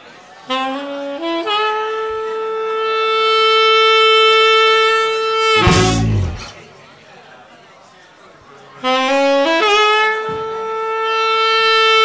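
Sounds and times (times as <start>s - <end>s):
full band hit: 5.6s - 6.6s.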